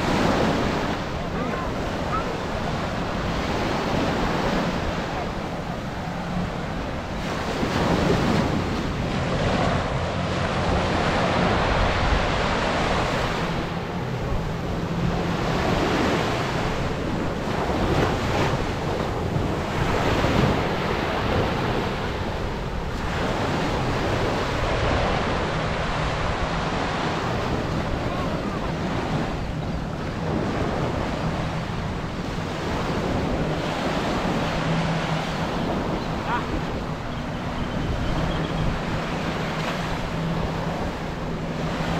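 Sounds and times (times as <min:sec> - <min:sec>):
surf washing onto shore: 0:00.0 - 0:41.9
wind buffeting microphone: 0:00.0 - 0:41.9.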